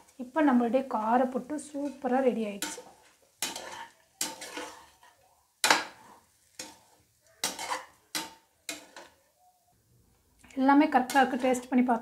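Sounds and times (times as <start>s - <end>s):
metal ladle scraping metal pot: 1.8s - 9.2s.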